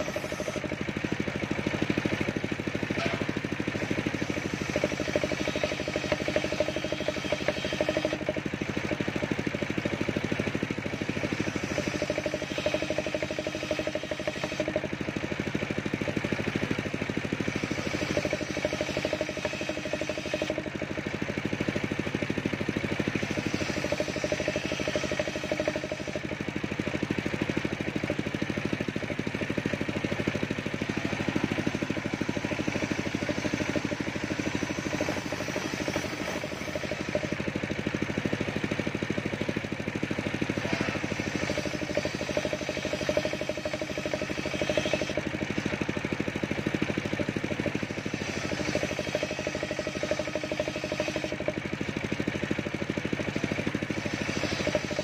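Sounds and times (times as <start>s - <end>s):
circular saw ripping wood: 31.5s - 37.4s, 40.6s - 45.2s, 48.0s - 51.4s, 53.8s - 55.0s.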